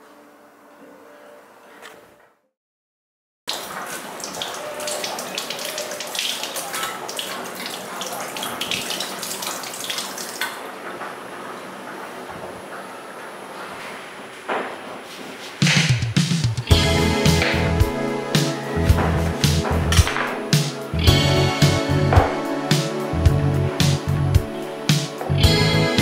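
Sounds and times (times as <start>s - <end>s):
tap water splashing into sink: 3.5s - 10.6s.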